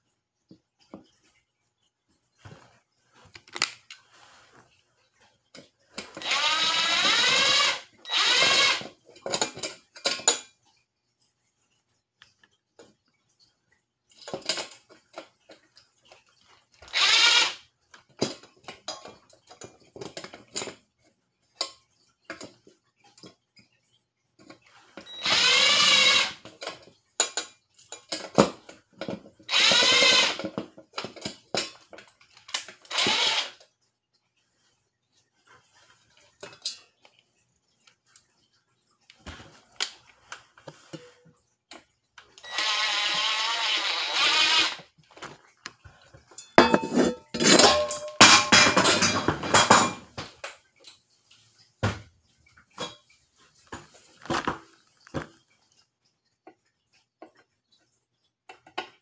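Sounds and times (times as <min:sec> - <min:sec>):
cordless drill running: 0:06.2 - 0:08.8, 0:16.9 - 0:17.6, 0:25.2 - 0:26.4, 0:29.5 - 0:30.4, 0:32.9 - 0:33.5, 0:42.5 - 0:44.8.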